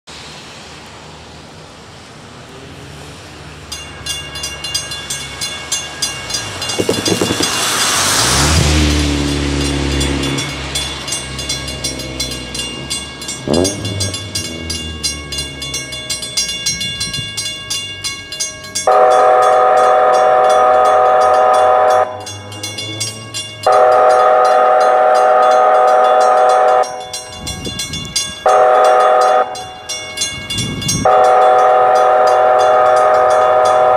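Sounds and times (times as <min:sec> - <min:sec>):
vehicle passing on wet road: 0:00.1 - 0:03.8, 0:06.2 - 0:17.0
crossing bells ringing: 0:03.0 - 0:33.9
wayside horn blasts: 0:06.3 - 0:27.5, 0:28.4 - 0:29.9, 0:30.6 - 0:33.9.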